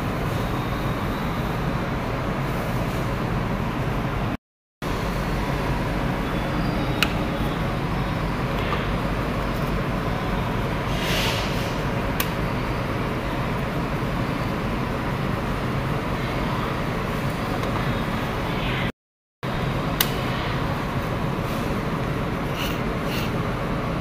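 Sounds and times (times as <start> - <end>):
brief hiss: 10.9 - 11.8.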